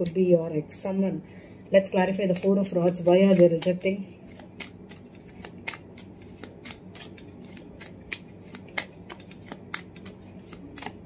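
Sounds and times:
cards being shuffled: 0:02.1 - 0:11.0.

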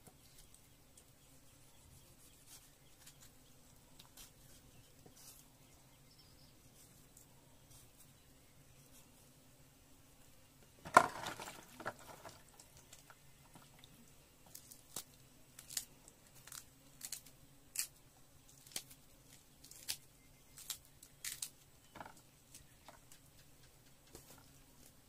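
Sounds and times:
chilies snapping by hand: 0:20.6 - 0:21.6.

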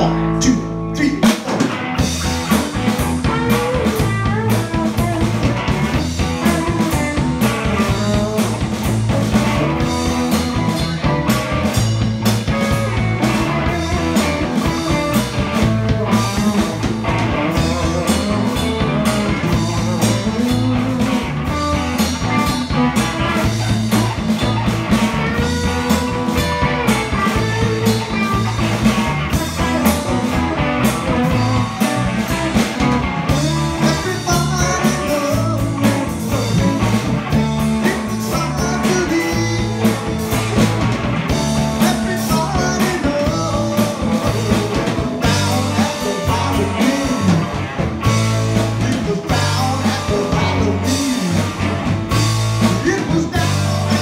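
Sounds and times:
electric guitar: 0:00.0 - 0:54.0
drum kit beat: 0:01.0 - 0:54.0.

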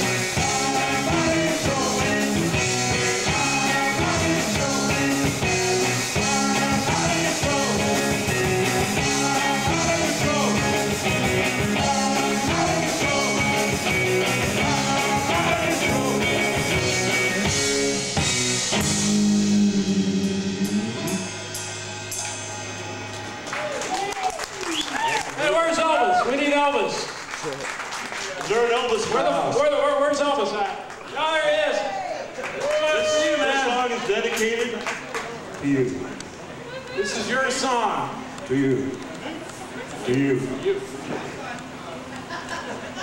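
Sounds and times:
person singing: 0:00.0 - 0:17.0, 0:18.8 - 0:21.4
live rock band playing: 0:00.0 - 0:23.6.

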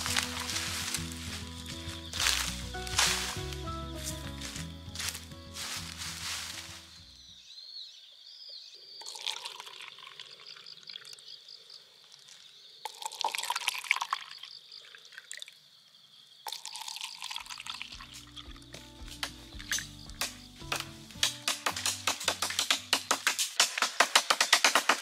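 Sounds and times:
liquid pouring into plastic cups: 0:09.0 - 0:11.2, 0:12.2 - 0:15.6, 0:16.5 - 0:18.5.

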